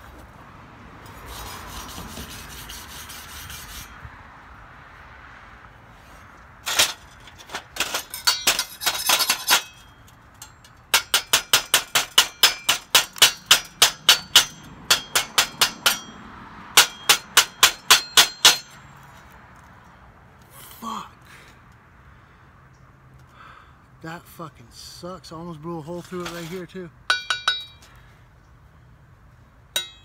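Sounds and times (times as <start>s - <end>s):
hammer striking metal: 8.0s - 18.8s, 27.1s - 27.8s, 29.7s - 30.0s.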